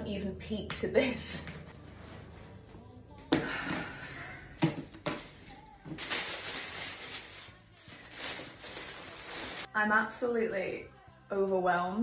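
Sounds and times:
tissue paper rustling: 5.3 - 9.7.

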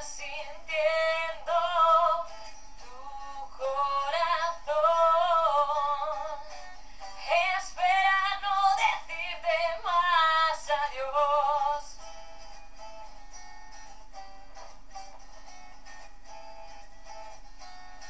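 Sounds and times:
woman singing: 0.0 - 12.0.

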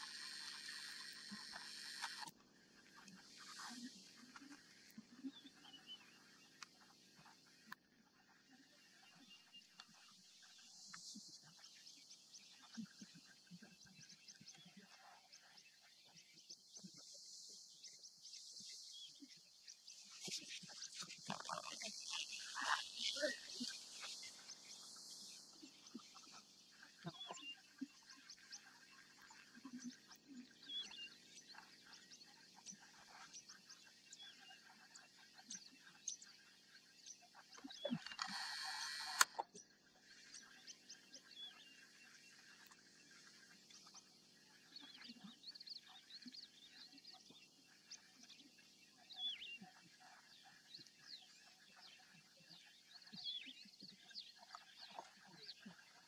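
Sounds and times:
steady hiss: 0.0 - 2.3
birds chirping and trilling: 17.8 - 56.0.

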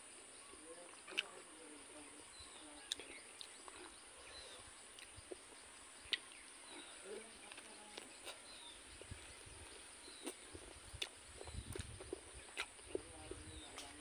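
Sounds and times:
mouth clicks and lip smacks: 0.9 - 1.4, 4.9 - 5.4, 10.1 - 13.0.

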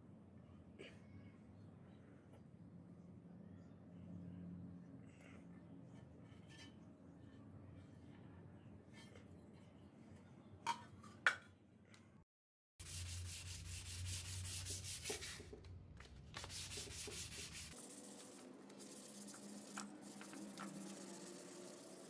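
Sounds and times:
sandpaper rubbing on wood: 12.8 - 15.5, 16.4 - 22.0.

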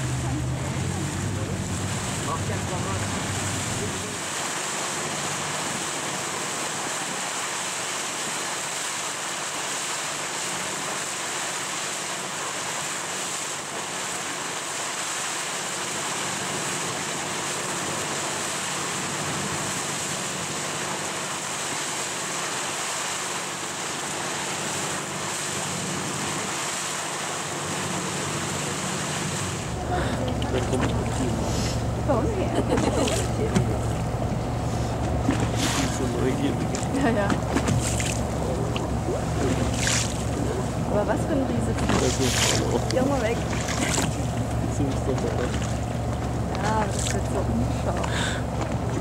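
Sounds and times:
water noise: 0.0 - 49.0
wind: 0.0 - 49.0.

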